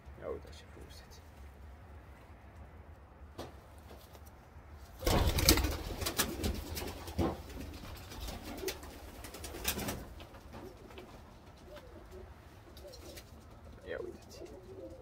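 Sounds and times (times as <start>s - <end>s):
pigeon wings flapping: 5.0s - 12.2s
pigeons cooing: 5.0s - 15.0s.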